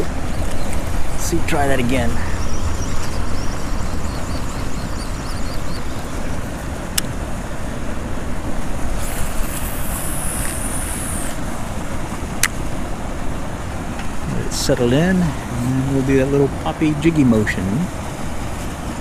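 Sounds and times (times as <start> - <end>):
rushing water: 0.0 - 19.0
wind buffeting microphone: 0.0 - 19.0.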